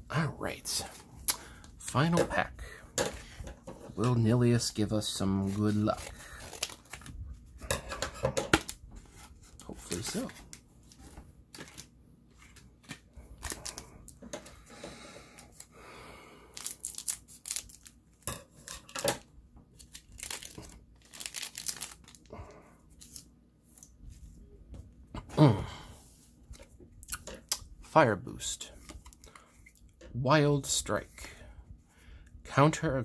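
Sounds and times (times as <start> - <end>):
cards being handled: 5.0 - 7.1, 8.4 - 14.4
wrapper crinkling: 5.4 - 7.2, 16.6 - 18.0, 19.8 - 22.3
foil pack tearing: 19.8 - 22.3.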